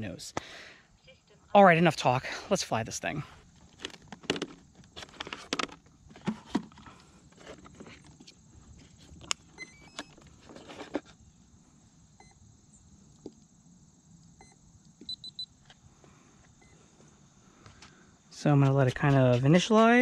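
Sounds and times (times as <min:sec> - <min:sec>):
short electronic beeps: 0:14.4 - 0:15.5.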